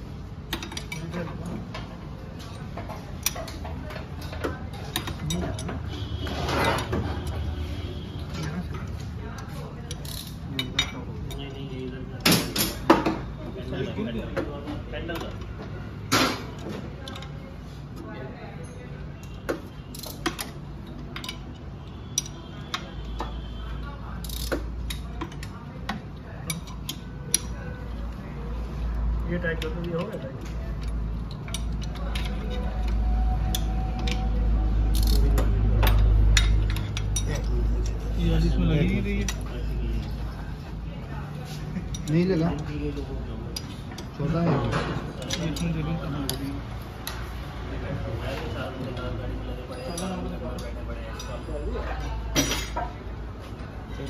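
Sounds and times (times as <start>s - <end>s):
ratchet wrench clicking: 9.9s - 11.5s, 24.2s - 25.6s, 29.5s - 38.0s
metal clicks and taps: 29.5s - 34.3s.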